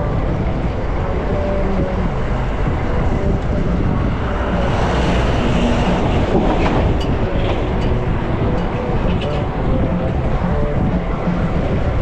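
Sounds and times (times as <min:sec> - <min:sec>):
street traffic: 0:00.0 - 0:12.0.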